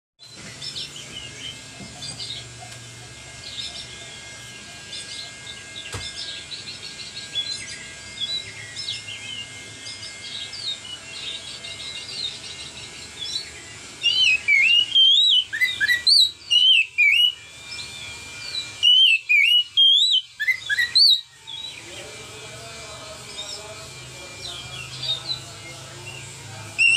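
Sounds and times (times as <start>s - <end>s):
bird singing: 0.2s - 26.9s
loud looping bird whistles: 3.4s - 21.9s, 24.4s - 26.9s.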